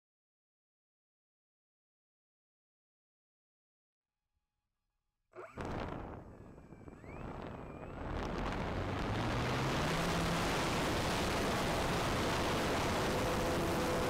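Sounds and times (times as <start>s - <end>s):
model plane electric motor whine: 5.4s - 14.0s
propeller spinning: 5.4s - 14.0s.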